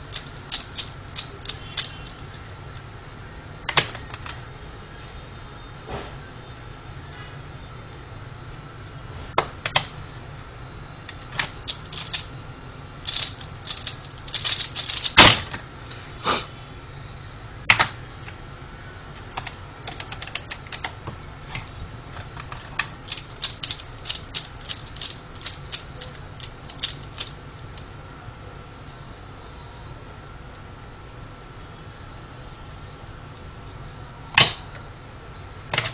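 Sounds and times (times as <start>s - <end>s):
puzzle cube plastic clicks: 0.0s - 2.3s, 3.7s - 4.4s, 11.1s - 12.3s, 13.0s - 15.5s, 19.3s - 27.9s.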